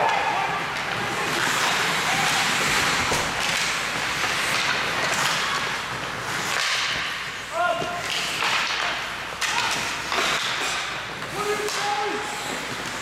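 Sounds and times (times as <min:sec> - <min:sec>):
skates scraping ice: 0:00.0 - 0:13.0
stick and puck knocks: 0:06.4 - 0:07.2, 0:07.8 - 0:10.9.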